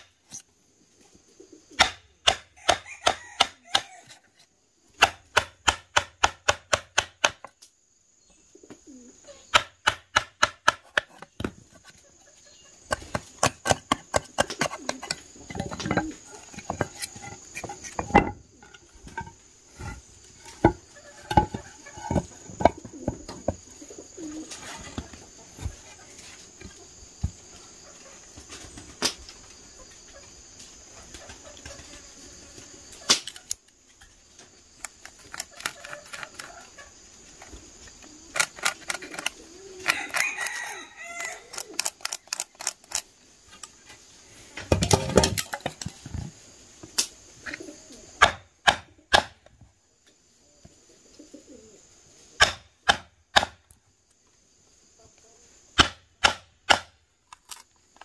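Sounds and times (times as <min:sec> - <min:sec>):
chicken calls: 0:01.0 - 0:04.4, 0:11.2 - 0:28.7, 0:35.2 - 0:42.6
sharp chopping strikes: 0:01.8 - 0:03.9, 0:05.0 - 0:07.4, 0:48.2 - 0:49.4, 0:52.4 - 0:53.6, 0:55.8 - 0:57.0.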